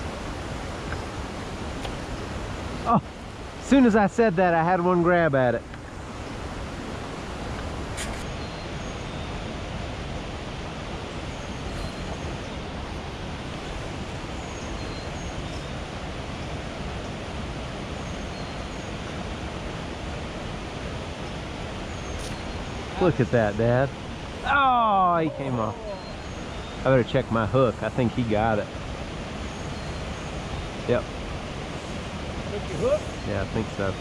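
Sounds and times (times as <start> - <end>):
stream water pouring over cascade: 19.4 - 29.4.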